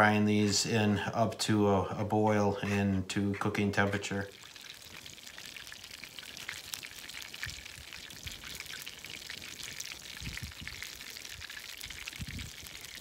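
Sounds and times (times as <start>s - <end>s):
campfire crackling and popping: 2.8s - 13.0s.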